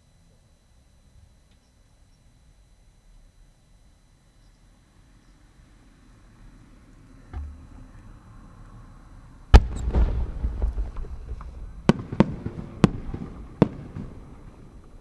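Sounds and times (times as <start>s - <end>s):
firework bang with rumbling echo: 9.5s - 14.5s
firework cracks: 9.5s - 15.0s.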